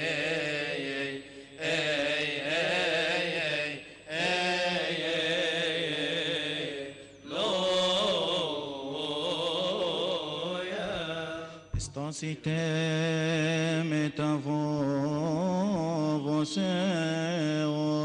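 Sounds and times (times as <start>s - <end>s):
men chanting a hymn: 0.0s - 18.0s
breaths: 1.2s - 1.6s, 3.8s - 4.2s, 6.9s - 7.3s, 11.4s - 11.8s.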